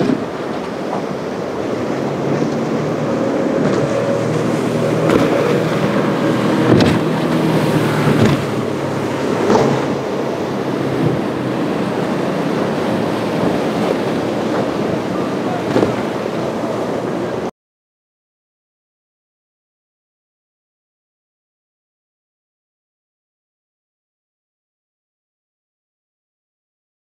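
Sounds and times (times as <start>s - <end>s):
boat engine drone: 0.0s - 17.5s
hull thumping on waves: 0.0s - 17.5s
rush of surf and spray: 0.0s - 17.5s.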